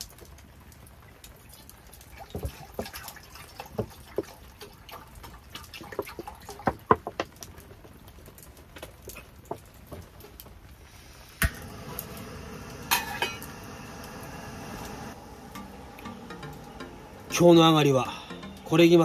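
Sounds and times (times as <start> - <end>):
water dripping and splashing: 0.0 - 12.2.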